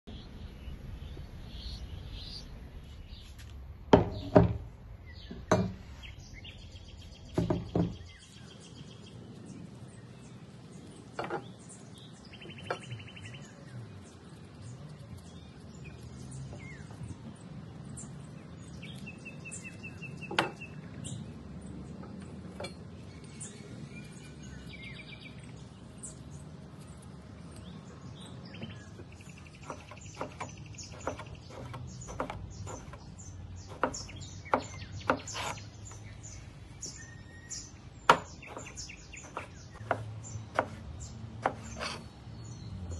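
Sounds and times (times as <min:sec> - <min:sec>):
small birds chirping: 0:00.0 - 0:42.9
loud knocks: 0:03.9 - 0:04.7, 0:05.3 - 0:05.8, 0:07.3 - 0:08.1
blade tapping board: 0:29.6 - 0:33.1, 0:38.1 - 0:40.8.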